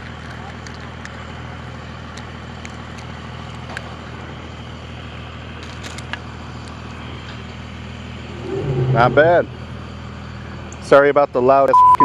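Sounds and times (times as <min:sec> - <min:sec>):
vehicle engine droning: 0:00.0 - 0:11.7.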